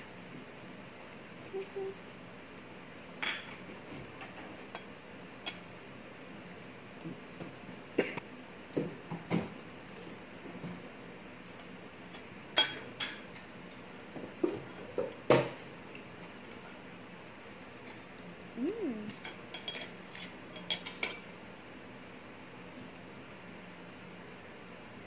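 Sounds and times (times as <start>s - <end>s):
cutlery clinking against dishes: 3.2s - 3.6s, 12.6s - 13.5s, 19.1s - 21.3s.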